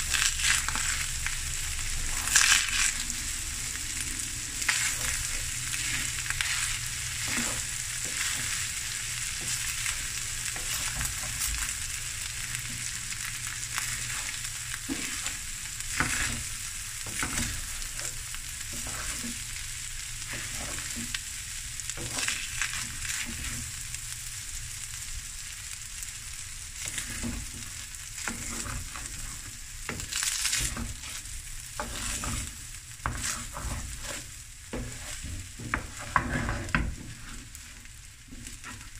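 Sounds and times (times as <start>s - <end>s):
food sizzling in a wok: 0.0s - 38.9s
spatula scraping pan: 4.1s - 11.7s, 12.6s - 21.3s, 21.9s - 23.8s, 26.8s - 38.9s.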